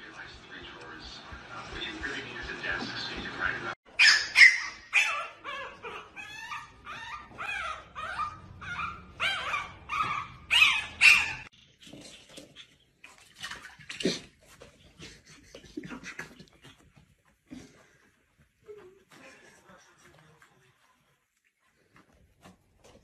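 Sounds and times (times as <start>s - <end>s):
puppy whimpering and yipping: 4.0s - 11.5s.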